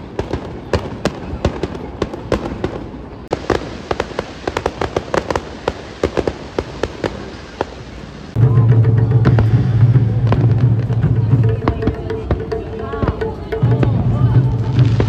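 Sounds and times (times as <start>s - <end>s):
fireworks bangs and crackling: 0.0s - 15.0s.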